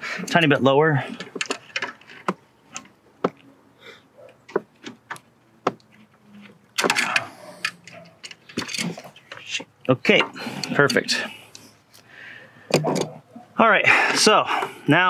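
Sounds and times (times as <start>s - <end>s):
pliers scraping: 5.8s - 9.6s, 10.5s - 12.0s.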